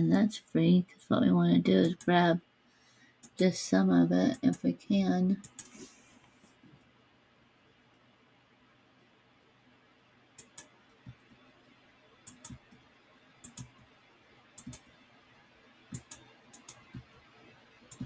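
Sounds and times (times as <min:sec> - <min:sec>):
computer mouse button clicking: 0:12.3 - 0:12.6.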